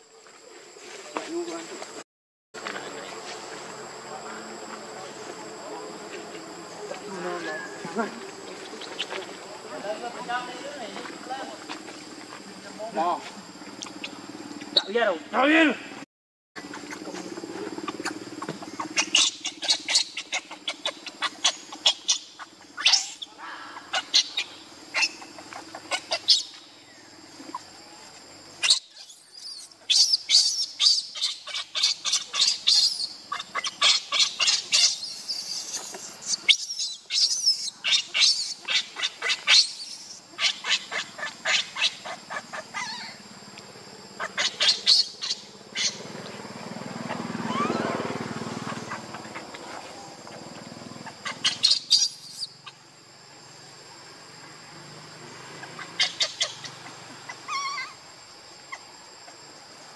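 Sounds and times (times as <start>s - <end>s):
infant monkey screaming: 16.6s - 26.7s, 28.6s - 43.3s, 44.2s - 46.2s, 47.0s - 52.9s, 55.5s - 58.1s.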